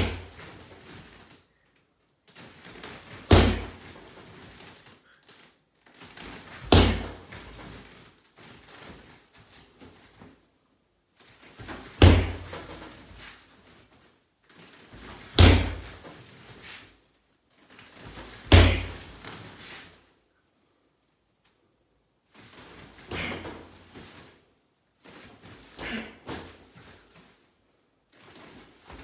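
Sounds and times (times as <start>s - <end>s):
sharp thuds on mat: 3.3s - 3.8s, 6.6s - 7.2s, 12.0s - 12.8s, 18.5s - 19.0s.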